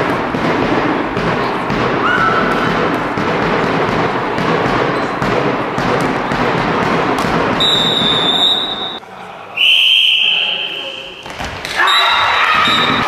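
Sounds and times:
ball bouncing on court floor: 0.0s - 8.8s, 11.2s - 11.8s
referee's whistle blast: 7.6s - 9.0s
voices shouting and chattering: 7.8s - 13.0s.

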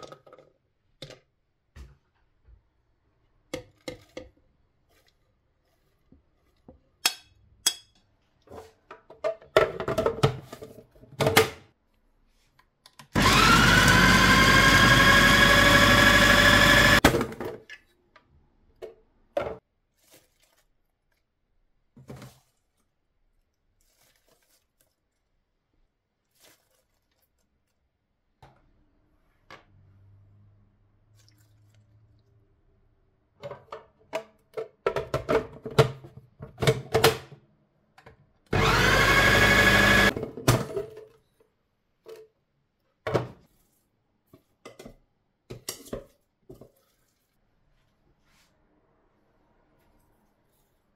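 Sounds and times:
food processor motor whining: 13.2s - 17.1s, 38.5s - 40.2s.

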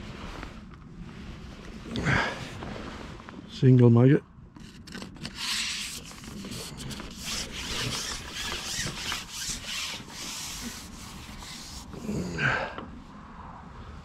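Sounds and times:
hands rubbing fishing pole: 4.6s - 12.2s.

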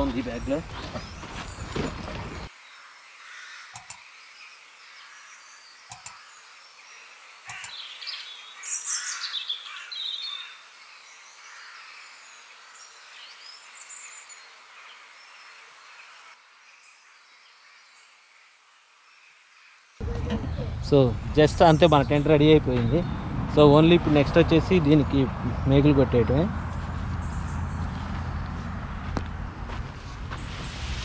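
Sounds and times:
tent fabric rustling: 0.0s - 2.5s
sharp clicks: 3.7s - 4.0s, 5.9s - 6.2s, 7.5s - 7.8s.

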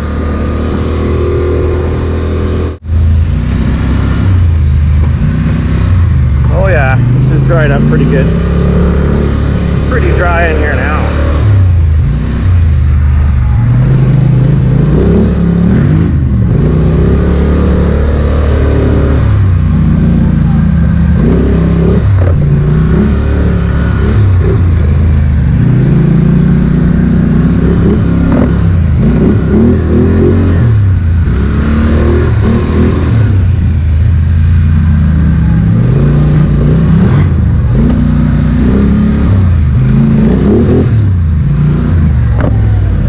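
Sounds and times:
atv engine revving: 0.0s - 43.0s.

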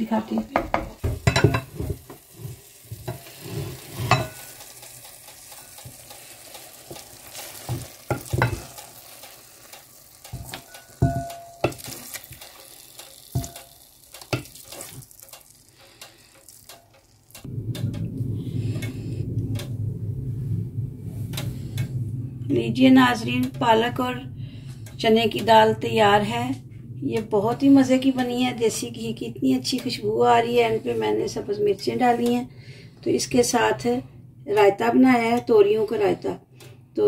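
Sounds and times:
wooden spatula scraping metal pan: 0.3s - 4.6s, 14.2s - 15.1s
steady low hum: 15.6s - 37.0s.

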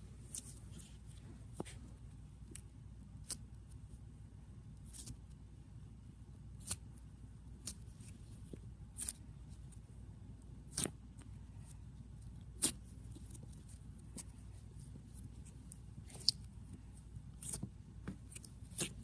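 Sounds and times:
low steady hum: 0.0s - 19.0s
fingers squishing slime: 2.4s - 3.8s, 4.8s - 5.4s, 6.5s - 19.0s.

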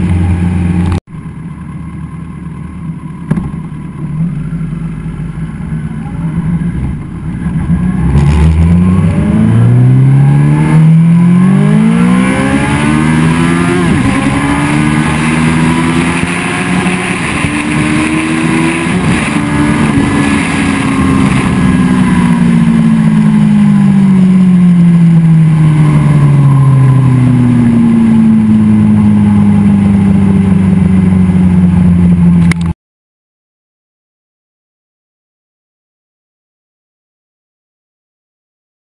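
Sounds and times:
motorcycle engine revving: 3.1s - 32.7s.

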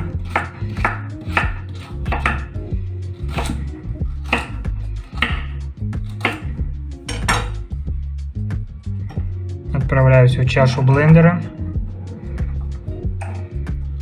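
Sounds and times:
knife chopping on wooden board: 0.0s - 2.6s, 3.2s - 7.6s.

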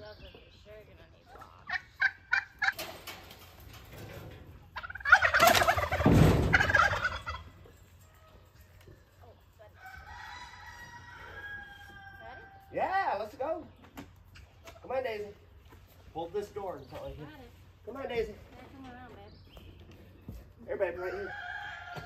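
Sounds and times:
poultry calls: 1.4s - 2.8s, 4.7s - 8.4s.

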